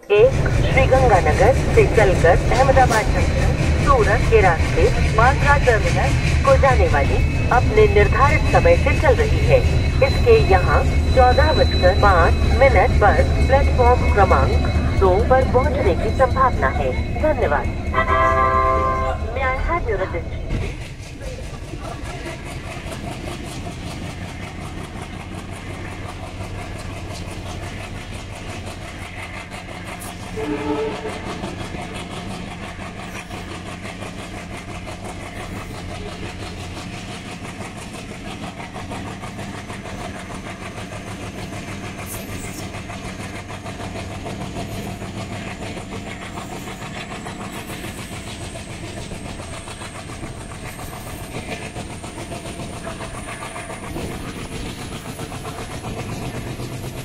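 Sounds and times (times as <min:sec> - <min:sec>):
locomotive horn: 0:00.0 - 0:19.6, 0:30.3 - 0:32.1
diesel locomotive humming: 0:00.0 - 0:57.0
train wheels clattering on rails: 0:00.0 - 0:57.0.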